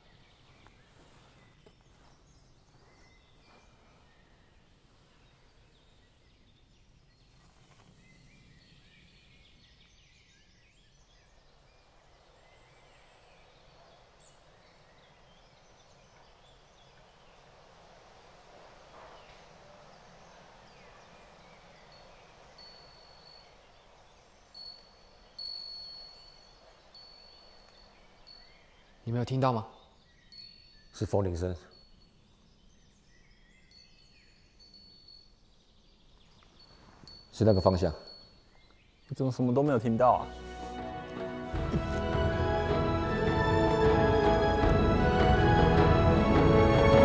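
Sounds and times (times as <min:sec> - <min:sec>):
wind chime ringing: 0:21.6 - 0:23.9, 0:24.6 - 0:29.5, 0:30.3 - 0:32.2, 0:33.6 - 0:35.4, 0:36.6 - 0:38.6.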